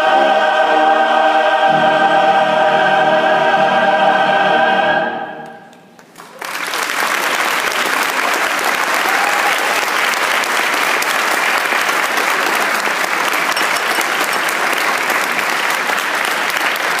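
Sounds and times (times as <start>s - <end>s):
audience applauding: 5.7s - 17.0s
hands clapping close by: 5.7s - 17.0s.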